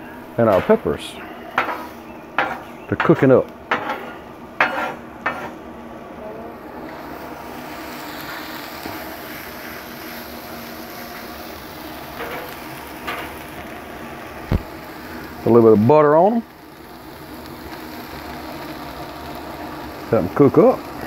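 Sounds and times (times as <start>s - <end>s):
peppers sizzling on griddle: 0.0s - 5.7s, 6.5s - 21.0s
metal spatula scraping griddle: 0.4s - 5.6s.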